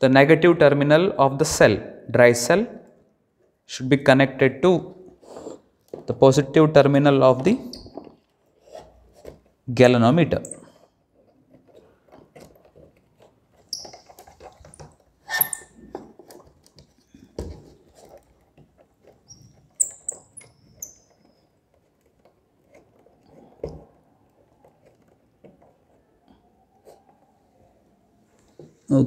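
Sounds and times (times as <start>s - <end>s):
brief high squeaks: 15.2s - 15.9s.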